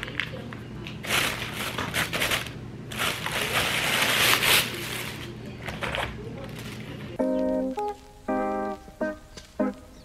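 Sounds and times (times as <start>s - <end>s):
plastic bag rustling: 0.9s - 7.2s.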